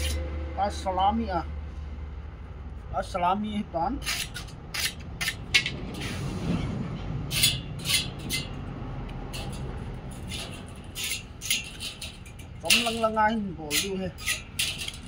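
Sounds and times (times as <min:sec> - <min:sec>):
hand file scraping steel: 0:00.0 - 0:00.2, 0:04.0 - 0:06.2, 0:07.3 - 0:08.6, 0:09.3 - 0:15.0.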